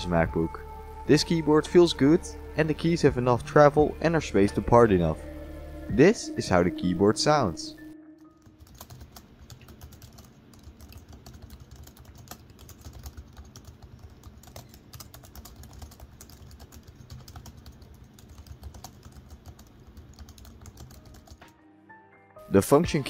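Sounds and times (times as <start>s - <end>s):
fast typing on laptop keyboard: 8.5s - 21.5s.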